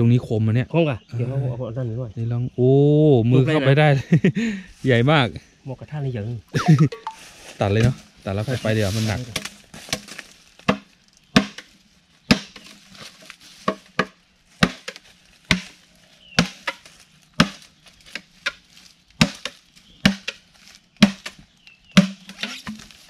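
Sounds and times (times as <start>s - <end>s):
machete chopping bamboo: 9.3s - 18.6s, 19.2s - 23.0s.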